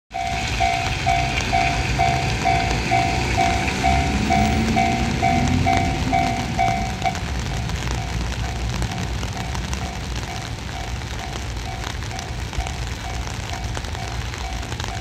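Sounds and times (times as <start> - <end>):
railroad crossing bell dinging: 0.1 - 15.0.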